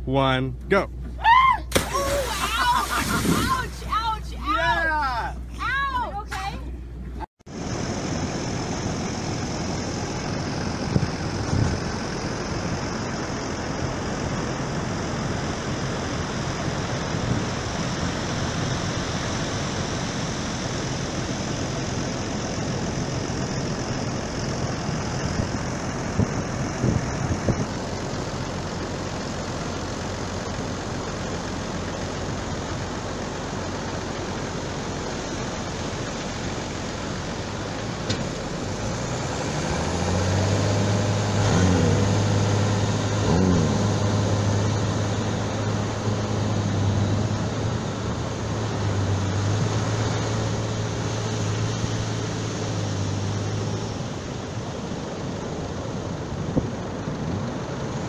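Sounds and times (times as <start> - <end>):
engine running: 0.0 - 58.0
wind: 0.0 - 58.0
surf: 1.3 - 6.6.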